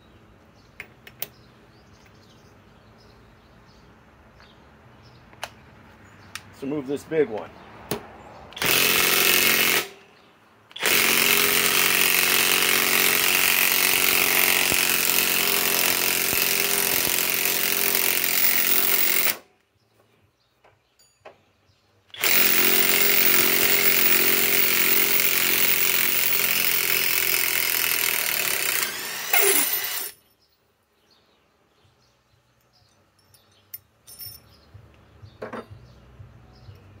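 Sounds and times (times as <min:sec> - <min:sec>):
impact wrench hammering: 0:22.2 - 0:30.2.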